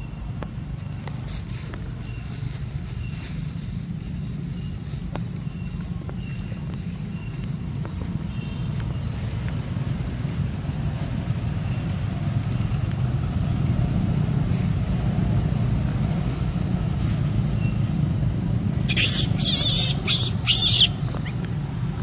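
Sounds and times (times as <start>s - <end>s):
rustling in dry leaves: 0.7s - 8.8s.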